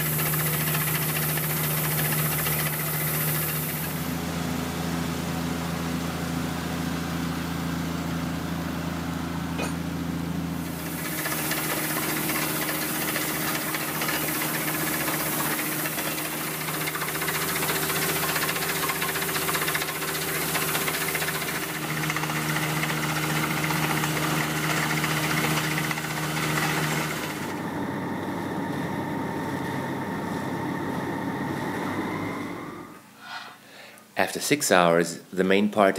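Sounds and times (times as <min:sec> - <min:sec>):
drilling rig engine hum: 0:00.0 - 0:04.2, 0:10.6 - 0:33.0.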